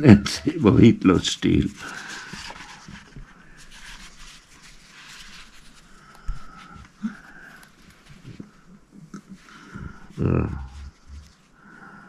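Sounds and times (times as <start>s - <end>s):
book pages turning: 0.6s - 8.6s.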